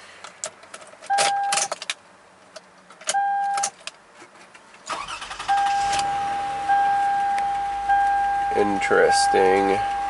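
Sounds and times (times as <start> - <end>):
electronic warning chime: 5.4 - 10.0.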